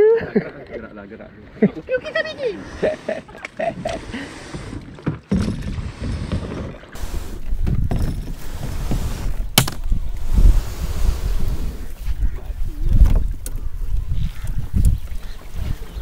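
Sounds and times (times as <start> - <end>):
wind rumble on microphone: 5.4 - 16.0.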